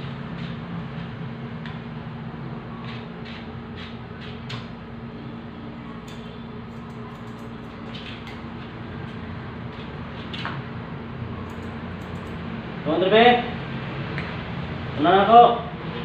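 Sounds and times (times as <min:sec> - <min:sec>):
steady low hum: 0:00.0 - 0:16.0
grooming scissors clicking: 0:06.1 - 0:07.8, 0:11.5 - 0:12.4.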